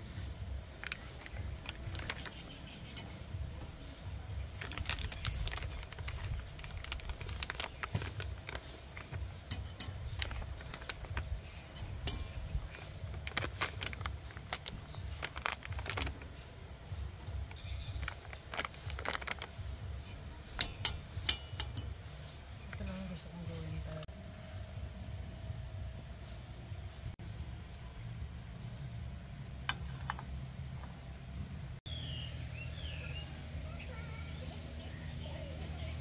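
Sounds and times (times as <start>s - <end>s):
plastic bag crinkling: 0.8s - 2.6s, 4.4s - 16.4s, 17.3s - 19.8s
low rumble: 22.4s - 33.6s.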